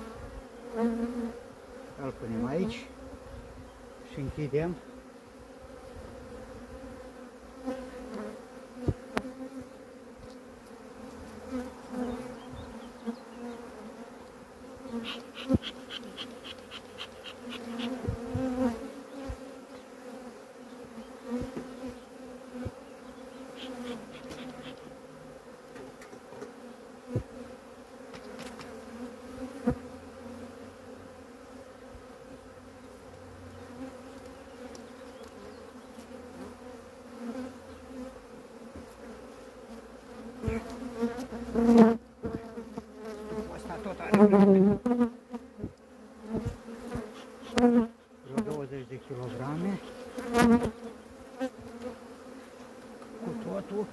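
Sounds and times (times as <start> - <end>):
honeybees humming: 0.0 - 53.9.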